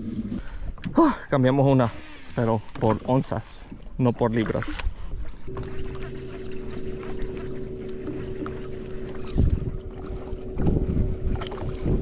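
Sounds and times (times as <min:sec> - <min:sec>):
electric boat motor hum: 0:04.7 - 0:12.0
wind buffeting microphone: 0:09.2 - 0:12.0.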